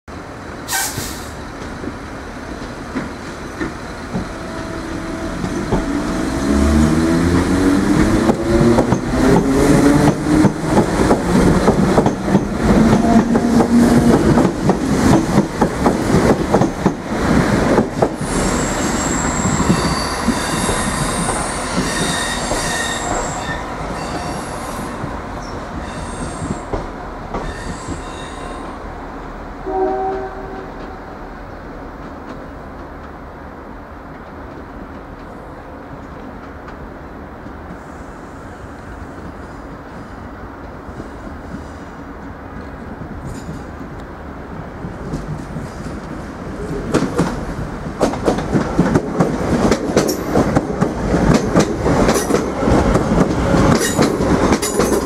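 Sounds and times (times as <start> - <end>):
wheel squeal: 18.2 - 26.6
wheels clattering over rail joints: 48.0 - 55.0.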